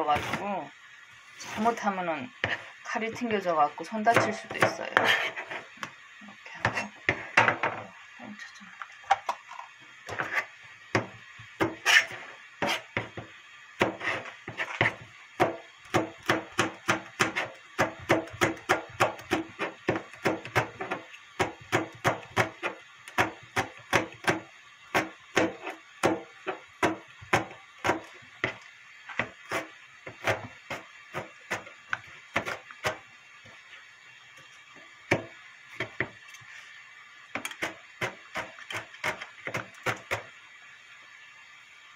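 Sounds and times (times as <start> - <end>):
knife chopping on plastic board: 4.1 - 5.2, 14.6 - 24.4, 25.0 - 28.6, 29.2 - 33.0, 37.4 - 40.2.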